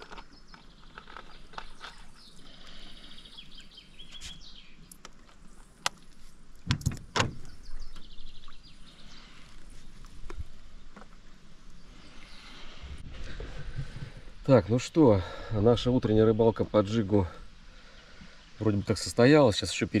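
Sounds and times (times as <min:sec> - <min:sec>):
birds trilling and chirping: 0:00.0 - 0:05.8
tackle clicking and knocking in boat: 0:05.8 - 0:08.1.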